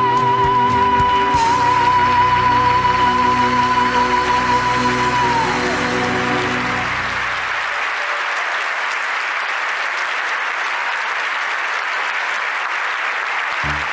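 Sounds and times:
audience applauding: 0.1s - 13.9s
sustained music notes: 13.6s - 13.9s.

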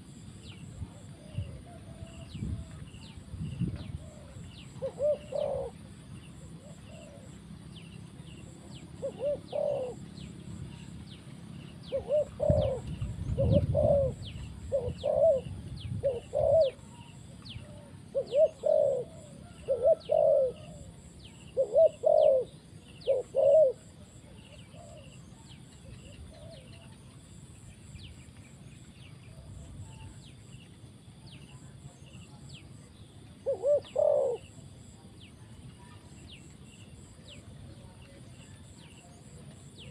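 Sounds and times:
dove cooing: 0.8s - 7.5s, 8.4s - 10.9s, 11.8s - 27.0s, 33.3s - 34.9s.

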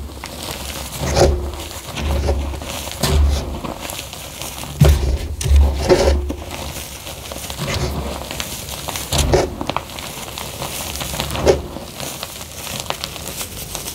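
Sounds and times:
hands crushing chalk: 0.0s - 13.9s.

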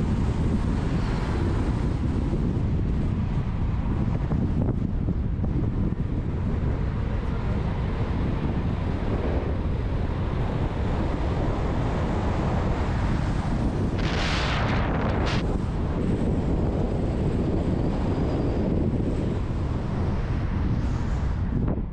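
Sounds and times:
wind buffeting microphone: 0.0s - 21.9s
car engine rumble: 1.9s - 18.1s.

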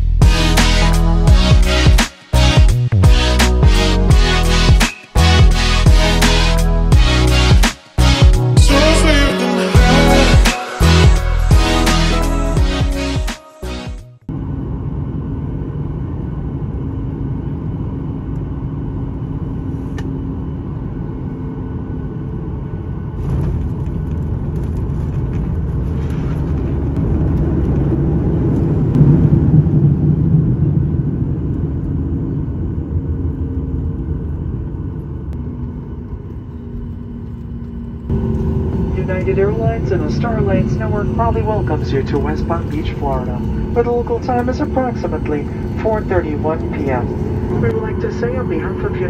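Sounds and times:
jet cabin rumble: 14.2s - 49.0s.

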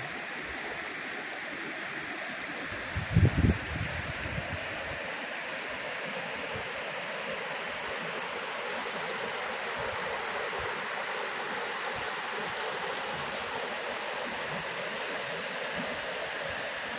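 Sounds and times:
river rushing over rapids: 4.1s - 16.9s.

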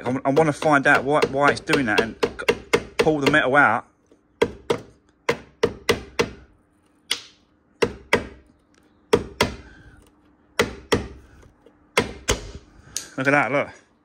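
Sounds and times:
hammer knocking on metal panel: 0.0s - 3.5s, 4.4s - 6.4s.

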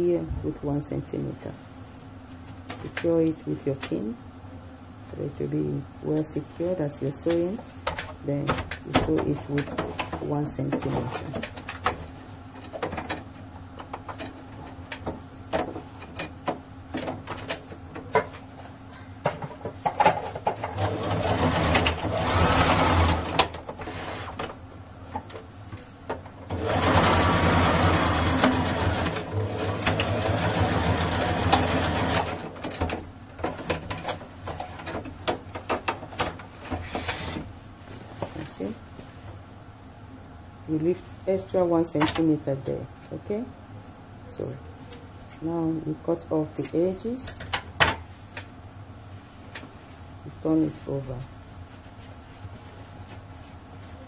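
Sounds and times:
sewing machine stitching: 20.6s - 24.4s, 26.5s - 32.6s.

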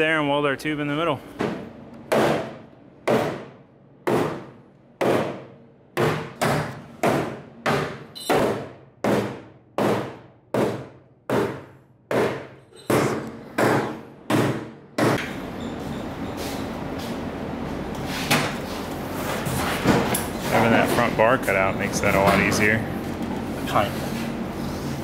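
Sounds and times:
hammer pounding sheet steel: 2.1s - 15.2s.

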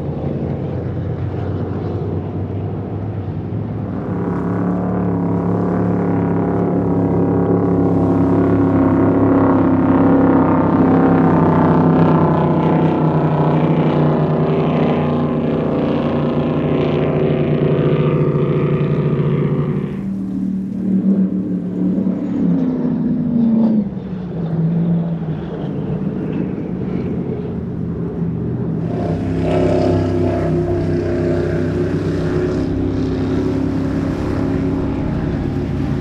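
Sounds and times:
powerboat engines running: 0.0s - 36.0s.

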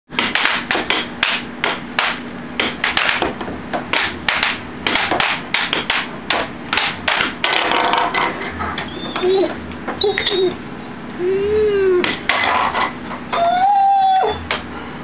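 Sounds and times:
puck clacking: 0.2s - 8.4s.

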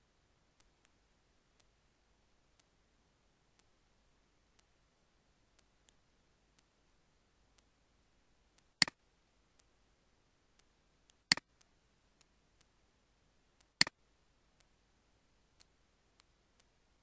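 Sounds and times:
faint ticks: 0.0s - 1.8s, 2.5s - 2.8s, 3.5s - 3.8s, 4.5s - 4.8s, 5.5s - 6.8s, 7.5s - 7.8s, 8.5s - 9.8s, 10.5s - 12.8s, 13.6s - 14.0s, 14.6s - 14.8s, 15.5s - 17.0s.

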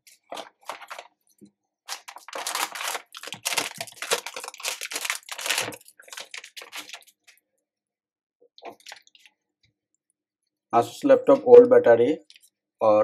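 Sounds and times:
plastic bag crinkling: 0.1s - 1.2s, 1.9s - 7.4s, 8.7s - 9.3s.

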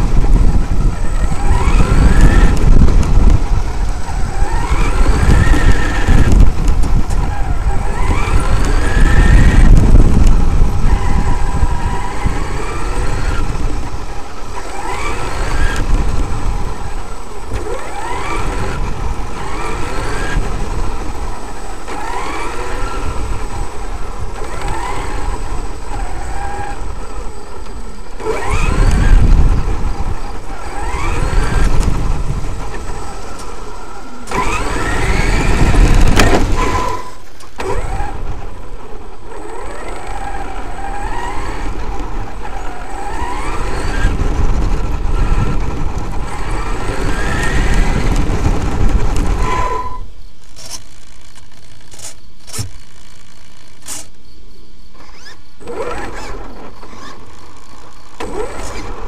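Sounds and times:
electric motor whining: 0.0s - 59.0s
tyres rumbling on gravel: 0.0s - 59.0s.

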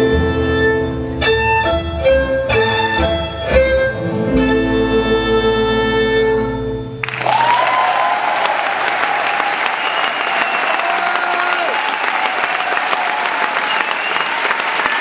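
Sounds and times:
accordion and fiddle chord: 0.0s - 7.0s
audience applause: 7.0s - 15.0s.

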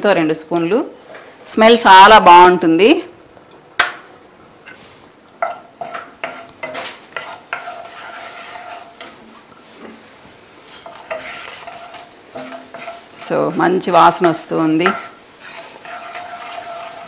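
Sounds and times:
oil sizzling in a pan: 4.7s - 17.0s
wooden spatula scraping a pan: 4.7s - 17.0s.

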